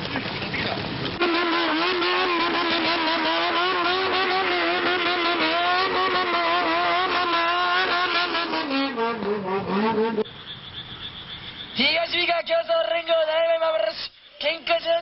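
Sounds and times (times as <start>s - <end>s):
engines revving: 0.0s - 11.8s
exhaust crackles: 0.0s - 12.0s.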